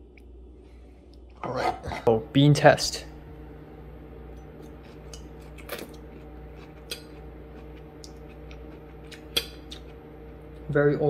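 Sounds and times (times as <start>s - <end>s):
steady low hum: 0.0s - 11.0s
person chewing: 4.4s - 10.7s.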